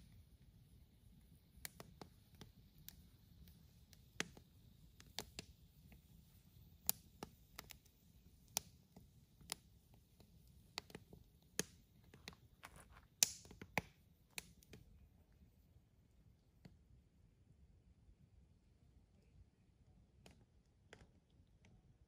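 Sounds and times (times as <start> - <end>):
firewood crackling and popping: 1.2 - 15.5.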